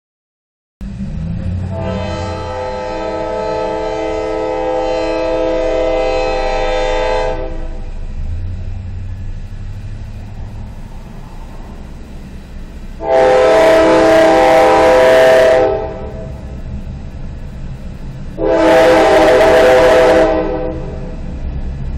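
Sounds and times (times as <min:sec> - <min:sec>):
low locomotive rumble: 0:00.8 - 0:21.9
diesel locomotive horn: 0:01.4 - 0:08.2, 0:13.0 - 0:16.7, 0:18.3 - 0:21.4.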